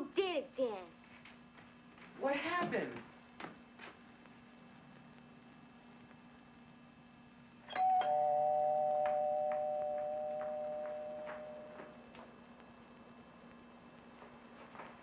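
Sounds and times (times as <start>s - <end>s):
two-note doorbell chime: 7.7s - 12.0s.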